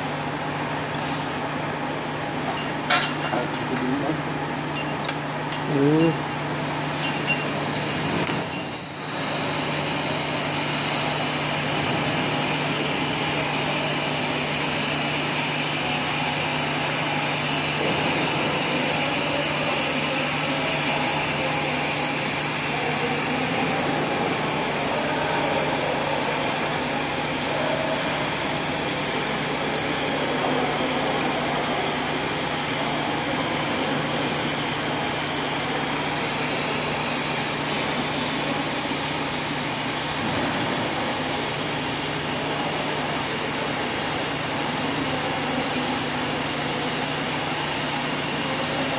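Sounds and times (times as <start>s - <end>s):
welding arc hissing: 5.6s - 30.4s.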